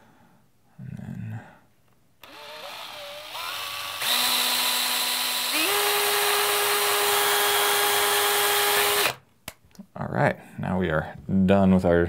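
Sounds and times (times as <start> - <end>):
cordless drill motor: 2.2 - 9.2.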